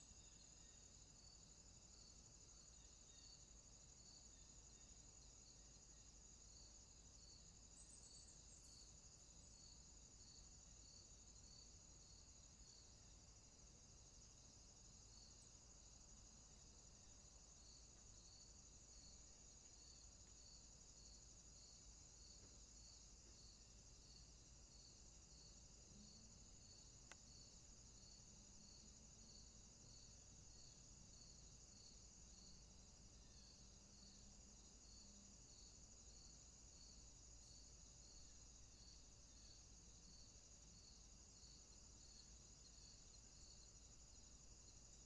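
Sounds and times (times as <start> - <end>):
faint high-pitched whine: 0.0 - 45.0
faint evenly spaced chirp: 2.2 - 13.0.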